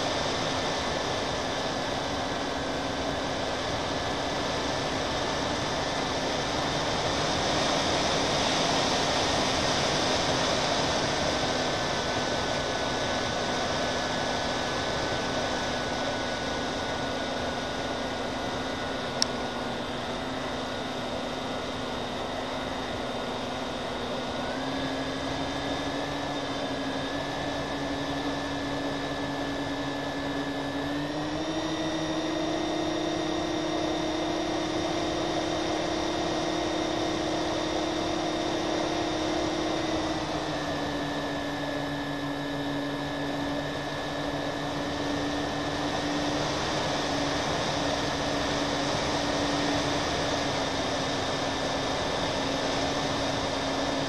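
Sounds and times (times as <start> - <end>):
model airplane motors and propellers: 0.0 - 54.0.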